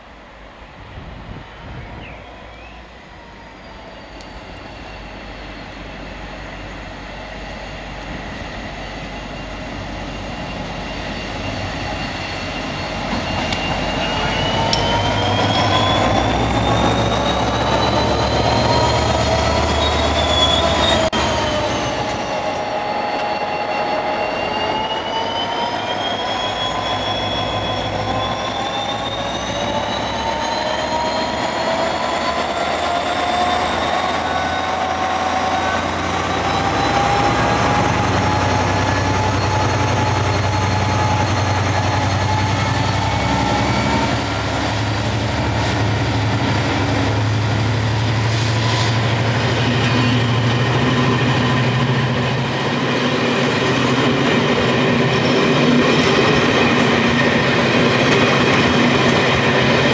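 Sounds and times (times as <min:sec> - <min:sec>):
diesel locomotive passing: 0:00.0 - 0:59.9.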